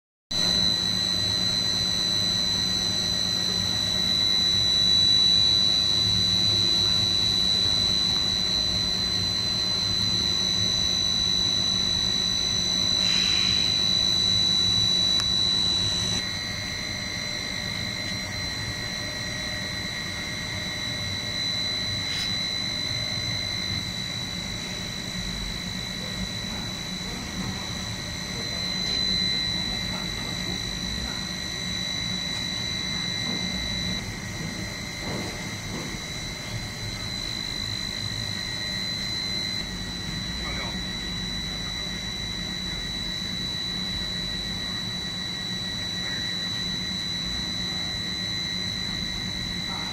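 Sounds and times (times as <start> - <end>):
lower whine: 0.3 - 49.9
motors whining over low hum: 0.4 - 49.9.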